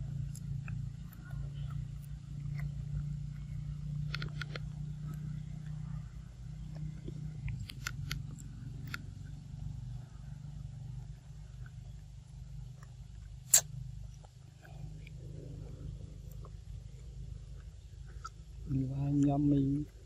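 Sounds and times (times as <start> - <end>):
low hum: 0.0 - 20.0
short sharp clicks: 13.5 - 13.7.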